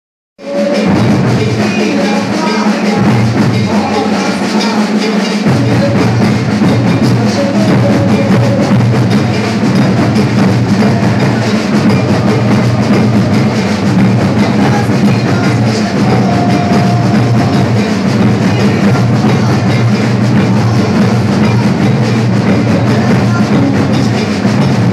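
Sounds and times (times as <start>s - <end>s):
snare drums: 0.4s - 24.9s
deep bass drums: 5.5s - 24.9s.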